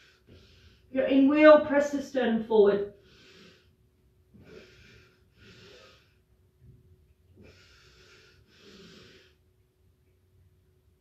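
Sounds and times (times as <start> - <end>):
woman breathing: 0.0 - 1.0, 2.9 - 6.7, 7.3 - 9.6
faint steady hum: 0.0 - 11.0.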